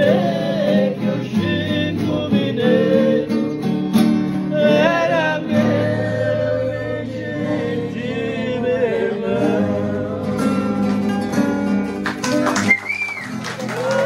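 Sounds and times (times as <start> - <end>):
man singing: 0.0 - 3.4, 4.5 - 10.8
acoustic guitars strummed: 0.0 - 14.0.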